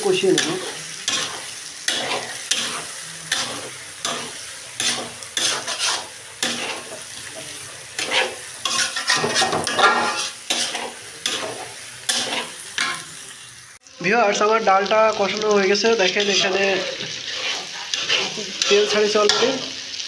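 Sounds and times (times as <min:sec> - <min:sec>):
food sizzling in oil: 0:00.0 - 0:20.0
metal spatula scraping pan: 0:00.4 - 0:07.4, 0:08.0 - 0:13.1, 0:16.1 - 0:19.8.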